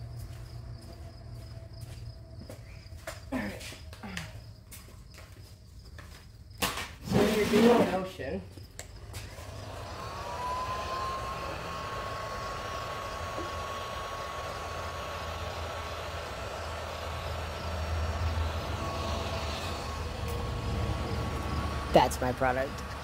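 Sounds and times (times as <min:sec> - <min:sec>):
heat gun blowing: 0:09.0 - 0:23.0.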